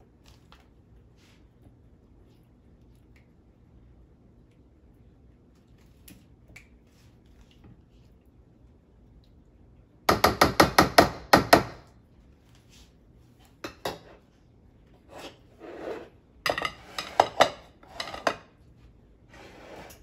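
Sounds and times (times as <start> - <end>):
dishes clattering on countertop: 13.6 - 14.2, 16.4 - 18.6.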